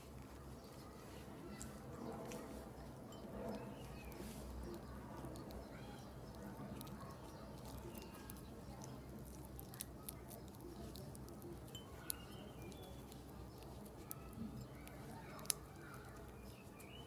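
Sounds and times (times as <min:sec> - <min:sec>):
slime squelching: 0:03.5 - 0:17.0.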